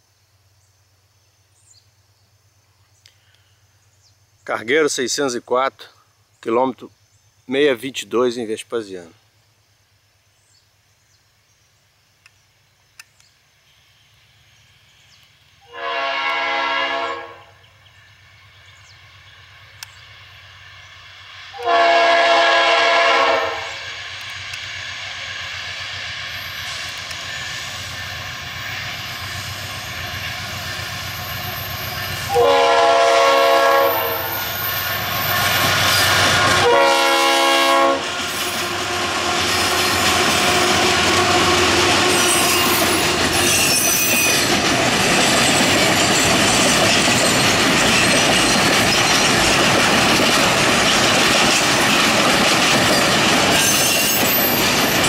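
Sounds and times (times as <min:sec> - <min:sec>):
locomotive rumble: 0:15.0 - 0:55.0
train air horn blasts: 0:15.6 - 0:17.6, 0:21.5 - 0:24.0, 0:32.3 - 0:34.5, 0:36.1 - 0:38.1
wheel and rail noise: 0:17.6 - 0:21.7, 0:23.4 - 0:32.5, 0:33.5 - 0:55.0.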